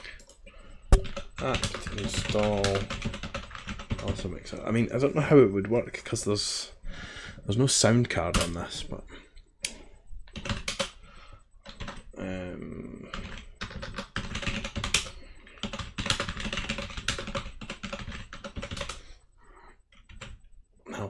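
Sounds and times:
computer keyboard typing: 0:00.1 - 0:04.4, 0:08.3 - 0:08.7, 0:09.7 - 0:11.0, 0:11.6 - 0:12.1, 0:12.9 - 0:19.2, 0:19.9 - 0:20.5.

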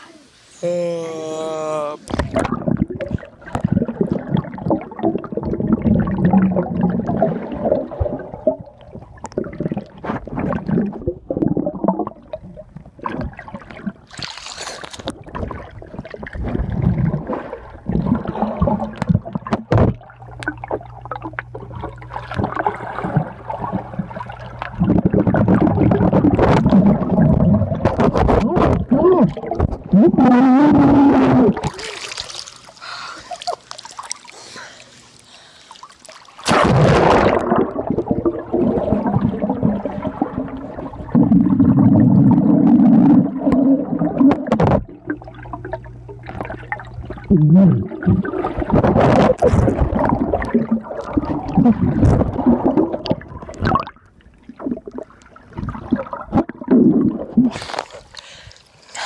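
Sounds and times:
muffled underwater bubbling and churning: 0:02.0 - 0:58.8
underwater knocks and clicks: 0:02.1 - 0:07.1, 0:15.0 - 0:29.9, 0:41.2 - 0:56.8.

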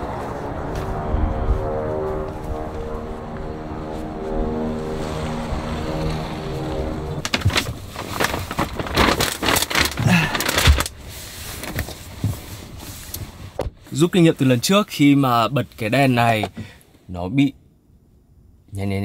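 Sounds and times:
background music sustained notes: 0:00.0 - 0:07.4.

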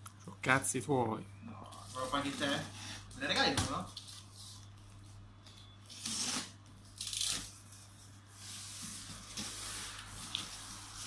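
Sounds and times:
packing tape ripping: 0:05.9 - 0:07.7
cardboard sliding and rubbing: 0:08.3 - 0:11.0.

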